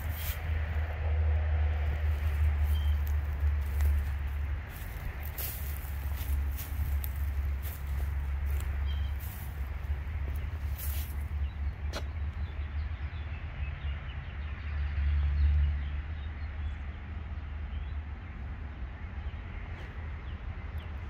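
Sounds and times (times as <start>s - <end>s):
wind buffeting microphone: 0.0s - 12.4s
small birds chirping: 2.1s - 14.5s.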